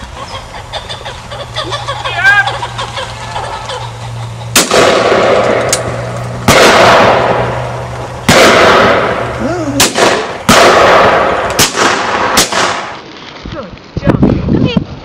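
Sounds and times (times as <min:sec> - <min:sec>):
shotgun shots: 0:04.5 - 0:13.0.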